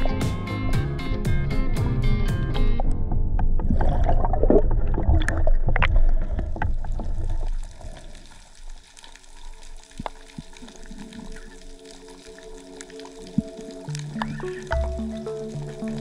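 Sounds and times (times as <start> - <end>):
water churning and bubbles rushing: 3.4 - 16.0
underwater hush: 7.6 - 16.0
faint steady tones: 9.1 - 16.0.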